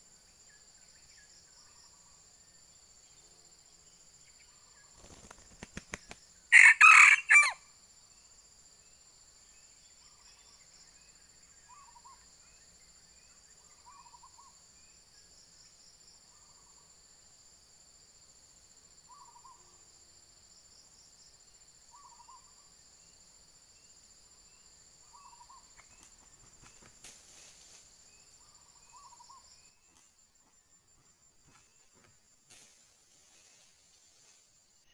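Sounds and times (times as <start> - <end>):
insect drone: 0.0 - 34.9
rooster crowing: 6.5 - 7.6.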